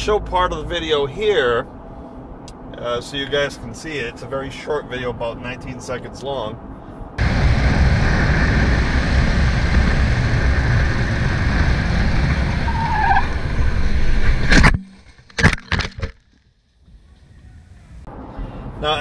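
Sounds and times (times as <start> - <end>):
road noise: 0.0 - 19.0
motorcycle engine at speed: 7.2 - 14.8
loud crash: 7.2 - 16.1
tyre squeal: 12.6 - 13.8.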